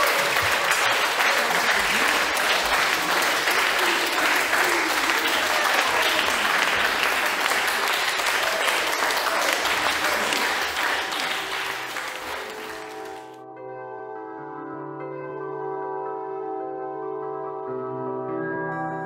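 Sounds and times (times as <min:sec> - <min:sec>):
audience applause and cheering: 0:00.0 - 0:13.4.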